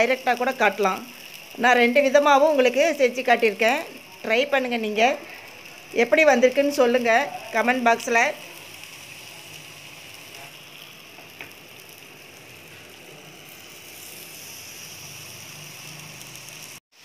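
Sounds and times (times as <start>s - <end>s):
skewers sizzling on a grill pan: 0.0s - 17.0s.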